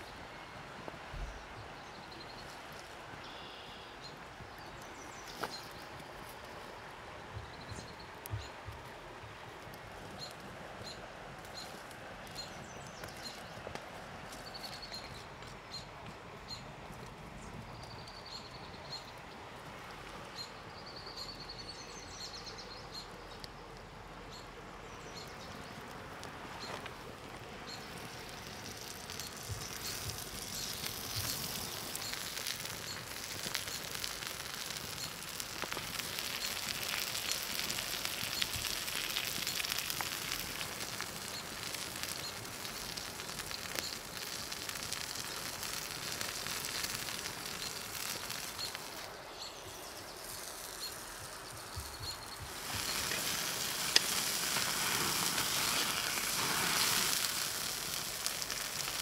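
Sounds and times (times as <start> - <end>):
wood fire crackling: 0.0 - 3.3, 4.0 - 59.0
steak sizzling on hot stone: 26.6 - 59.0.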